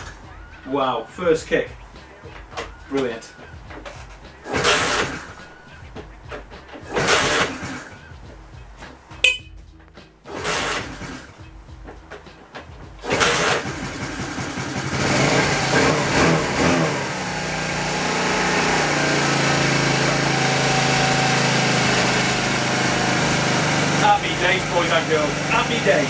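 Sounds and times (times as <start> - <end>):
motorcycle engine starting and idling: 4.4 - 5.4, 6.2 - 8.1, 10.2 - 12.3, 13.0 - 26.0.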